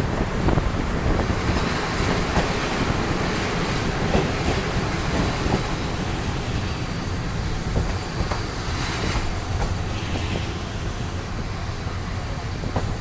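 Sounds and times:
clacks over rail joints: 0.0s - 13.0s
train wheels rumbling on rails: 0.0s - 13.0s.

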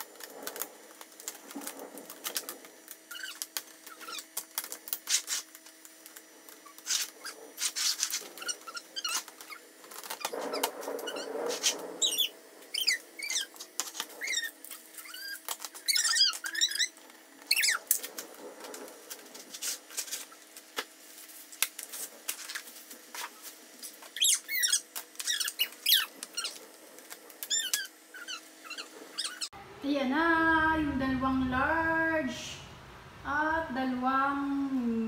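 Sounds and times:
plastic hinges squeaking: 3.1s - 4.3s, 6.6s - 17.8s, 24.1s - 29.5s.

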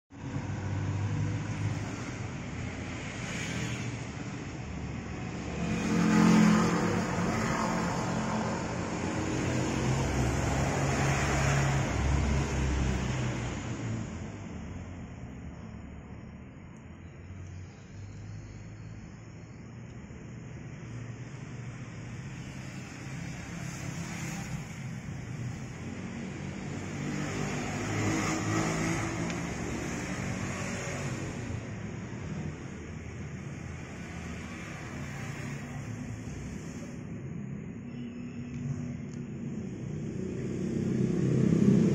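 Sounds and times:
vehicle engine passing: 0.2s - 15.3s, 22.1s - 37.2s, 38.7s - 41.9s.

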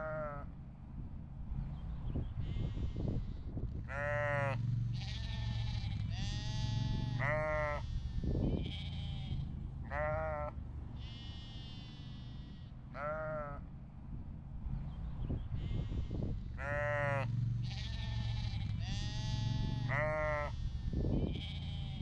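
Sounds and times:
lambs bleating: 0.0s - 0.5s, 3.9s - 13.6s, 16.6s - 22.0s
sheep bleating: 0.0s - 0.5s, 3.9s - 13.6s, 15.6s - 22.0s
low rumble: 0.4s - 4.0s, 13.6s - 20.0s.

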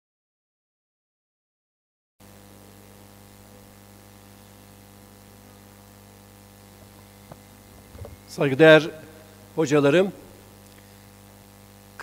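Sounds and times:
electrical mains hum: 2.2s - 12.0s
low hiss: 2.5s - 12.0s.

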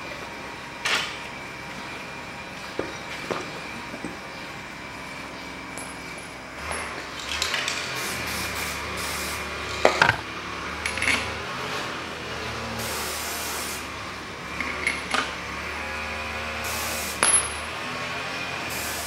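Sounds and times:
aerosol spray can hissing: 8.0s - 9.4s, 12.8s - 13.8s, 16.6s - 17.2s, 18.7s - 19.0s.

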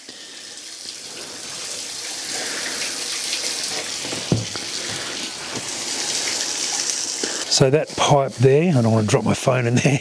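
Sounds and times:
water pouring into tank: 0.0s - 9.7s
knock: 4.1s - 4.6s.

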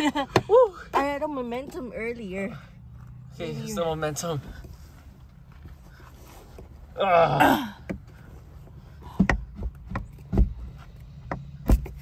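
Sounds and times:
person groaning with effort: 6.9s - 7.9s.

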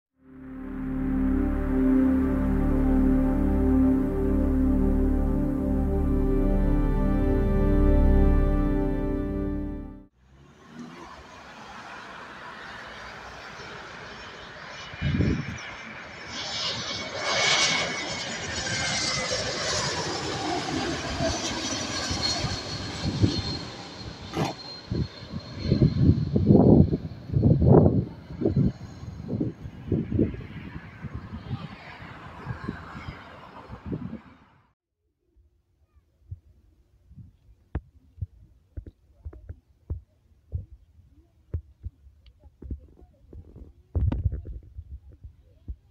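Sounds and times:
jet airliner passing: 0.4s - 34.8s
wind buffeting microphone: 14.9s - 15.7s, 24.3s - 34.4s.

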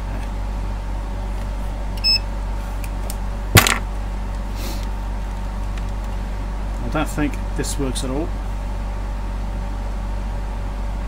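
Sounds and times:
low electrical hum: 0.0s - 11.0s
multimeter beep: 2.0s - 2.2s.

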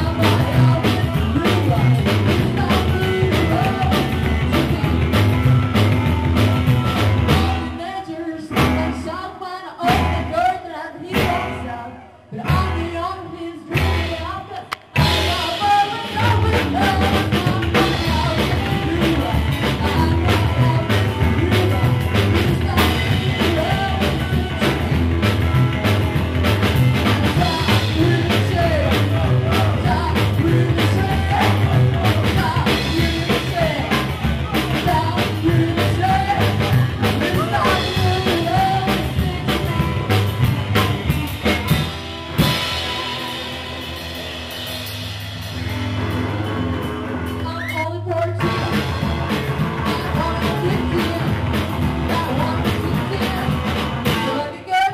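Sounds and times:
woman singing: 0.0s - 5.4s, 7.2s - 25.0s, 27.0s - 40.9s, 49.8s - 54.9s
rock and roll band playing: 0.0s - 54.9s.

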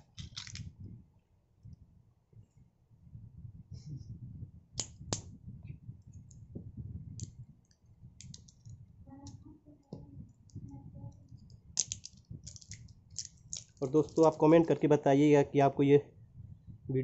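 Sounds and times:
plastic wrapper crackling: 11.8s - 14.9s.

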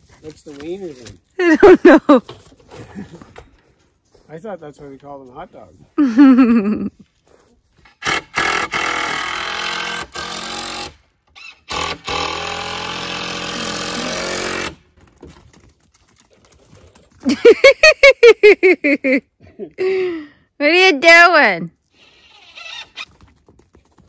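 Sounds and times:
cordless drill driving screws: 7.9s - 14.8s, 22.0s - 23.0s
short loud squeals: 22.0s - 23.1s.

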